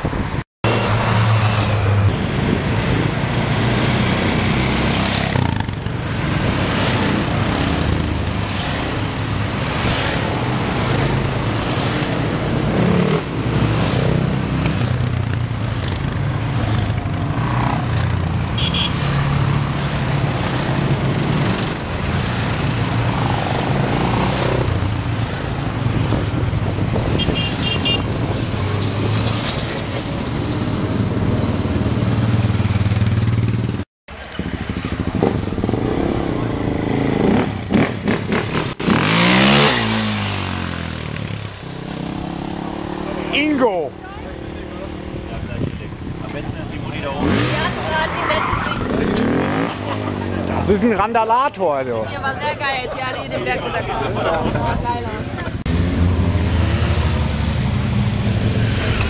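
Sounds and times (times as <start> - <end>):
quad bike engines passing: 0.7 - 59.0.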